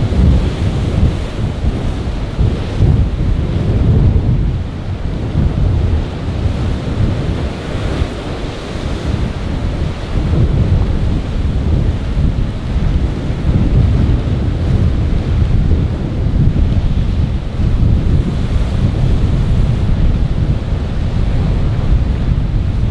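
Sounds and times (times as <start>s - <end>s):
rough sea washing: 0.0s - 22.9s
wind buffeting microphone: 0.0s - 22.9s.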